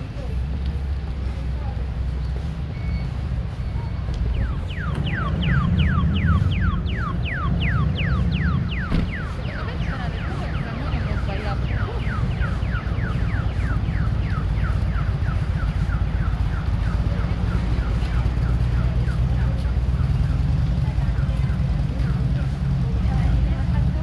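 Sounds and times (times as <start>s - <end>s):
low rumble of street noise: 0.0s - 24.0s
crossing signal chirping: 2.5s - 20.6s.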